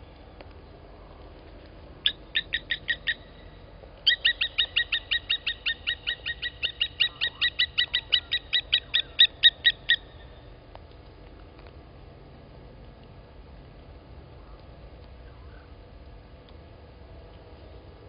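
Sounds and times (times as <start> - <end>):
lapwing metallic alarm calls: 2.0 - 10.4.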